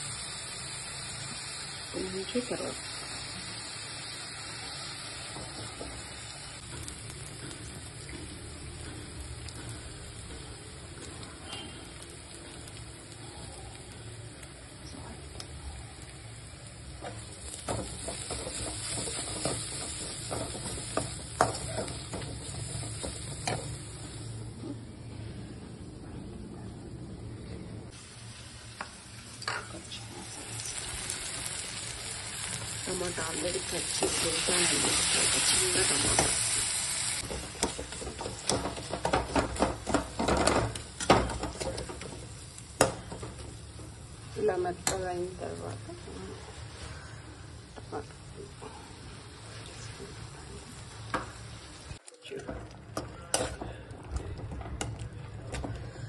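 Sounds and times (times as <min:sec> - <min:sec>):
onions sizzling in a pan: 0:00.0 - 0:25.3, 0:27.9 - 0:53.8.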